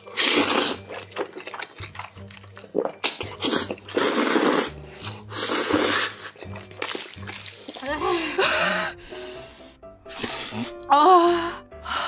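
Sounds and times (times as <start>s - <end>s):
person slurping noodles: 0.0s - 1.2s, 2.7s - 7.8s, 8.4s - 10.9s
background music: 0.0s - 12.0s.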